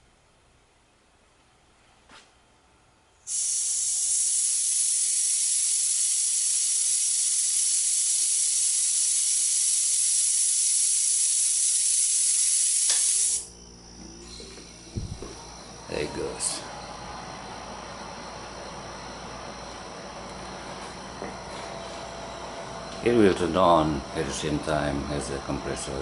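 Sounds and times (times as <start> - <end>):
refrigerator compressor hum: 2.3 - 26.0
compressed air hissing: 3.3 - 16.6.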